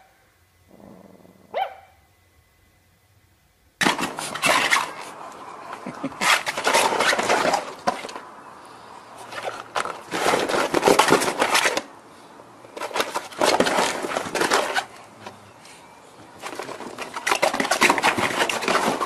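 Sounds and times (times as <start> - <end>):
puppy paws scrabbling on plastic: 3.8 - 8.3, 9.2 - 11.9, 12.7 - 15.0, 16.2 - 19.0.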